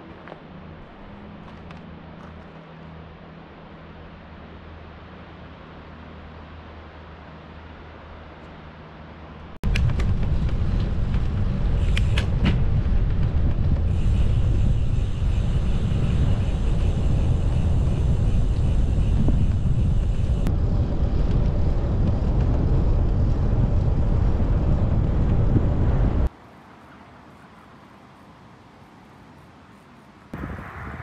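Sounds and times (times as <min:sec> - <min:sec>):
wind buffeting microphone: 0:09.6 - 0:26.3.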